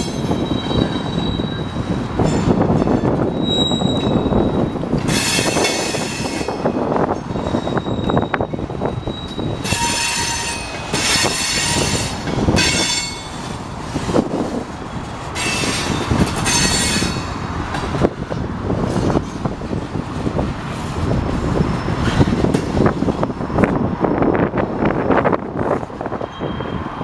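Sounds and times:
train wheels squealing on rails: 0:00.0 - 0:17.5, 0:21.6 - 0:23.8, 0:24.9 - 0:27.0
low train rumble: 0:00.0 - 0:27.0.

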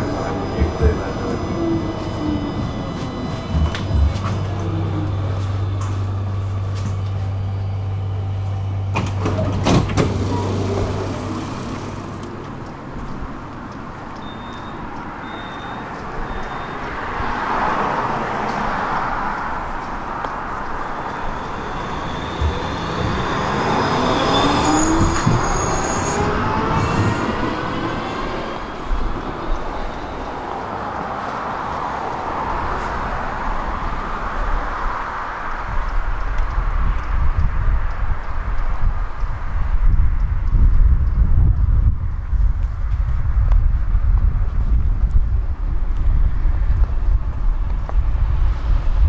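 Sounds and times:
wheel-on-rail running noise: 0:00.0 - 0:14.5, 0:17.8 - 0:32.9
traction motor whine: 0:00.0 - 0:31.2
tram electrical hum: 0:00.0 - 0:49.0
sliding doors knocking shut: 0:09.0 - 0:12.2.

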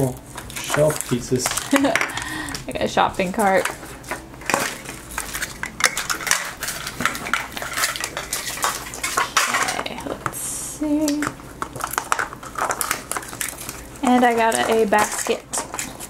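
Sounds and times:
plastic toys clicking and clattering: 0:00.0 - 0:10.2, 0:11.0 - 0:16.0
sticker seal rasping rustle: 0:11.7 - 0:16.0.

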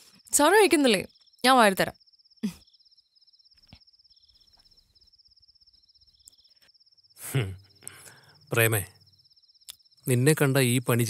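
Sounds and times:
crickets trilling: 0:00.1 - 0:11.0.

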